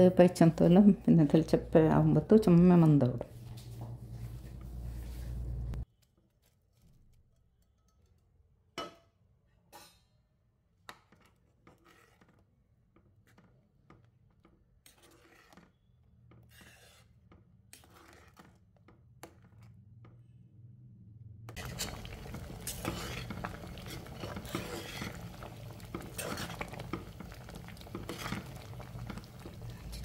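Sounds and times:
spatula scraping a pan: 11.0 - 13.6, 14.4 - 18.6, 21.6 - 30.0.

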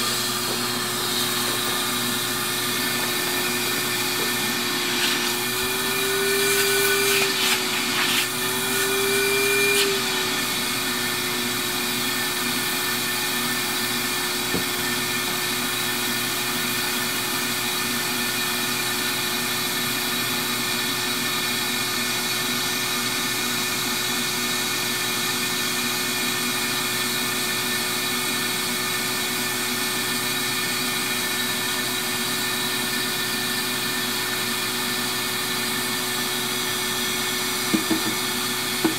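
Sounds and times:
vacuum motor whining: 0.0 - 18.5, 36.5 - 38.9.

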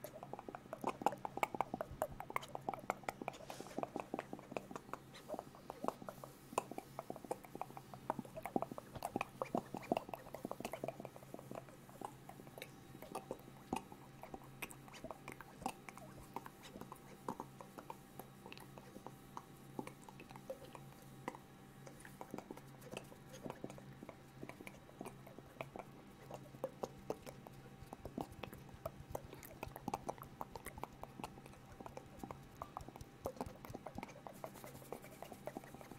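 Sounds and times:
wet mouth clicks and smacks: 0.0 - 35.9.

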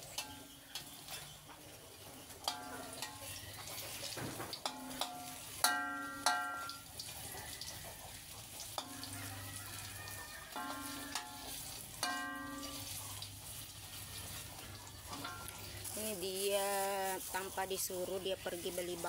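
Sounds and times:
metal spatula knocking wok: 0.0 - 1.3, 2.4 - 3.4, 4.5 - 7.0, 8.7 - 9.2, 10.5 - 13.0
food sizzling in oil: 0.0 - 19.0.

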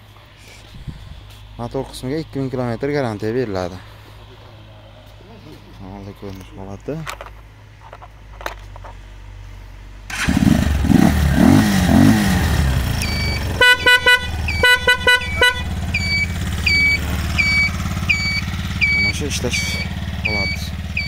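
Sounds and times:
motor tricycle engine idling: 0.0 - 21.0
horn short toots: 13.0 - 20.6
turn-signal beeper chirping: 13.0 - 21.0.

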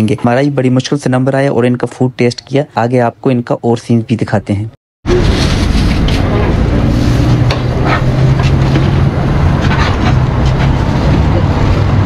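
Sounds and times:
engine rumbling: 5.1 - 12.0.

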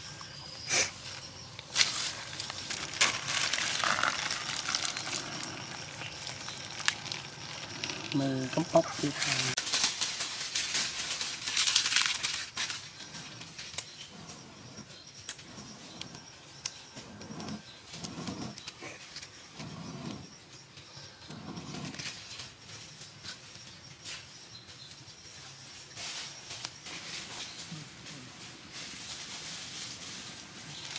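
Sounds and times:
person blowing on embers: 0.6 - 9.1, 17.0 - 20.3, 21.2 - 22.1
dry leaves rustling: 0.9 - 13.8, 25.9 - 30.9.

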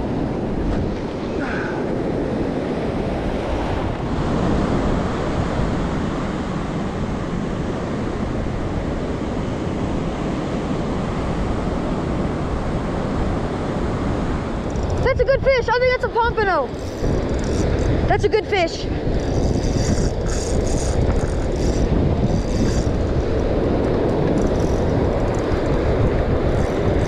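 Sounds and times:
ocean surf breaking: 0.0 - 27.0
wind blowing across microphone: 0.0 - 27.0.

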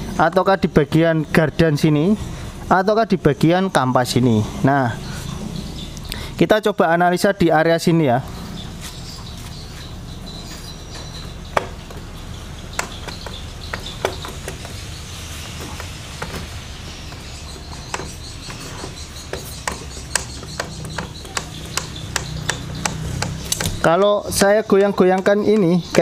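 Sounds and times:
steady low hum: 0.0 - 26.0
scooter wheel clicking and knocking: 10.9 - 26.0.

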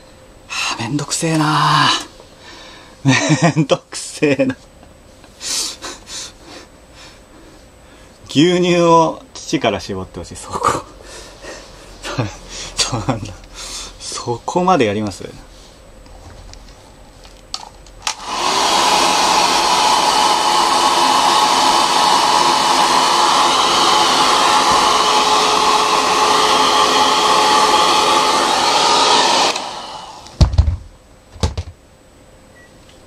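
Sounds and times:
hair dryer running: 18.0 - 30.5.

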